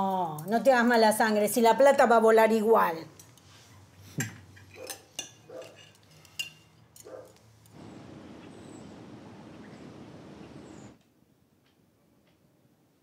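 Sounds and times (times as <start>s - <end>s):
city background hum: 0.0s - 11.0s
cutlery clinking on plates: 4.2s - 7.4s.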